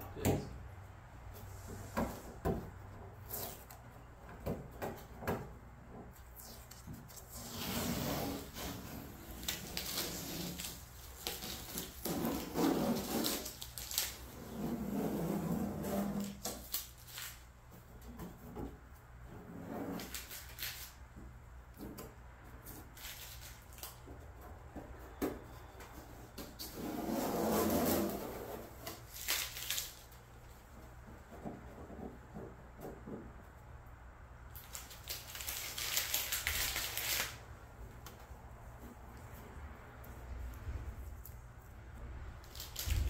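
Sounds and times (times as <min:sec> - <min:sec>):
tape peeling and crumpling: 0:03.2 - 0:03.9, 0:06.2 - 0:14.8, 0:15.8 - 0:17.5, 0:19.9 - 0:21.1, 0:22.6 - 0:24.2, 0:25.4 - 0:30.9, 0:34.5 - 0:39.4, 0:42.4 - 0:43.0.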